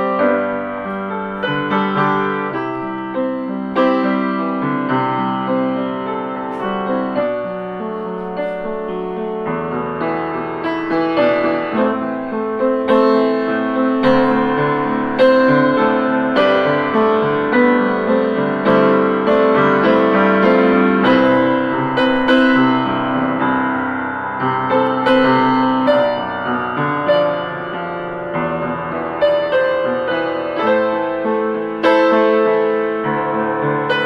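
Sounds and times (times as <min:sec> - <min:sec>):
solo piano melody: 0:00.0 - 0:34.0.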